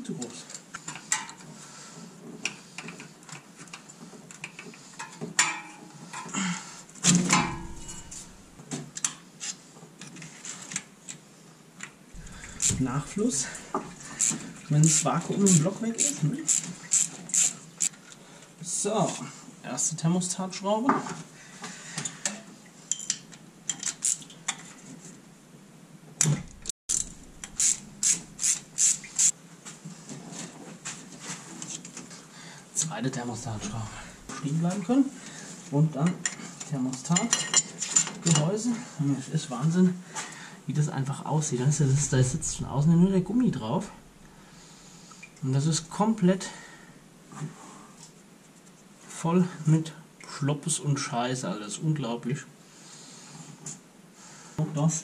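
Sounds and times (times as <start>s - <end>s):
metal hand tools clanking: 7.2s - 8.6s
ratchet wrench clicking: 12.2s - 17.5s, 26.4s - 29.3s.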